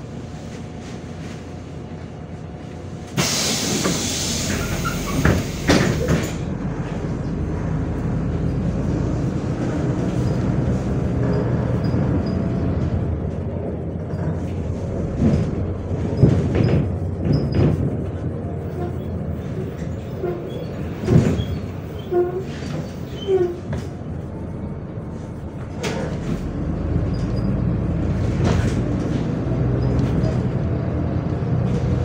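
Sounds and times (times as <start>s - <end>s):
bus engine running: 0.0s - 32.0s
loud hiss of air: 3.1s - 6.4s
bus doors thumping: 3.1s - 6.5s, 21.0s - 21.8s.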